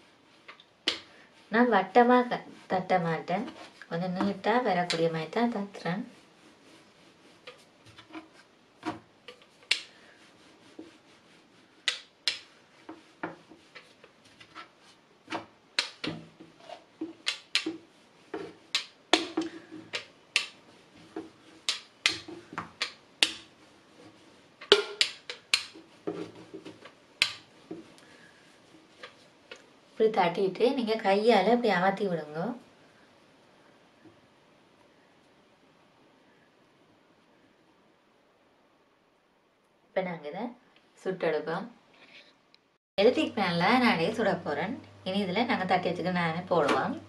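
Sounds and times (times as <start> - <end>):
hand slapping dough on board: 11.8 - 14.1, 15.3 - 23.6, 24.6 - 28.2.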